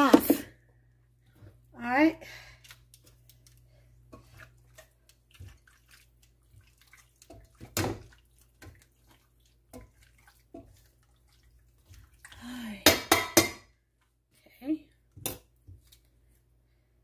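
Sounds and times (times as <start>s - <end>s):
low steady hum: 0.0s - 17.0s
tongs squelching raw chicken: 2.6s - 12.6s.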